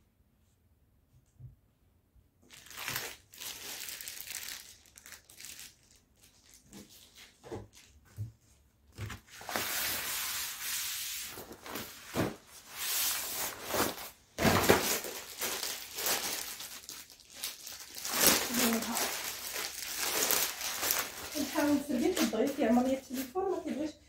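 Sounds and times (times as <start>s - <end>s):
tablecloth rustling and swishing: 9.1s - 14.8s.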